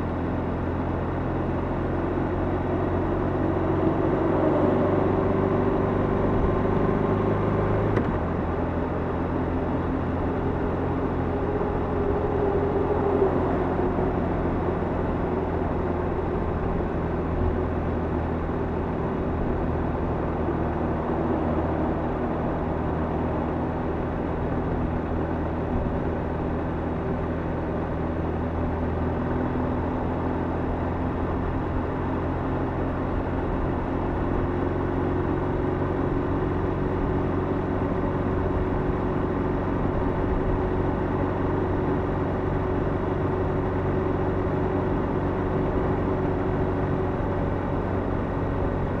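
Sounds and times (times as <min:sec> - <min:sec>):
wind and tyre noise in tunnel: 0:00.0 - 0:49.0
motorcycle engine cruising: 0:02.4 - 0:27.2.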